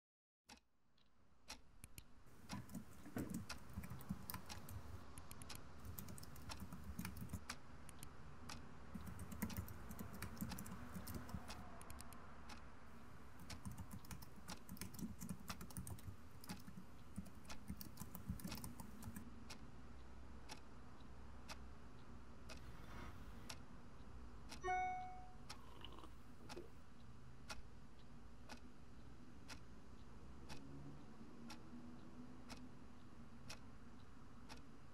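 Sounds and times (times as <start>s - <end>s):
keyboard typing: 2.4s - 8.0s, 8.9s - 12.1s, 13.4s - 19.2s
short chime: 24.6s - 25.5s.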